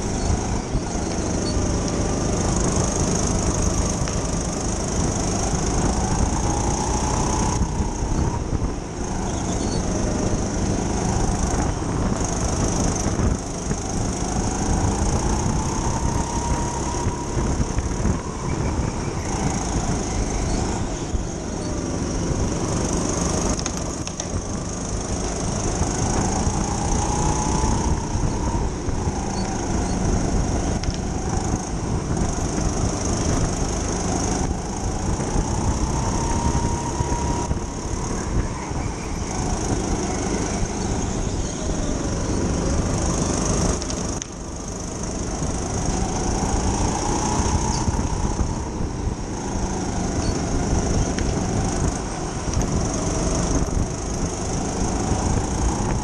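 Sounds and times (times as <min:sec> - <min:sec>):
go-kart motor revving: 0:00.0 - 0:56.0
steady low rumble: 0:00.0 - 0:56.0.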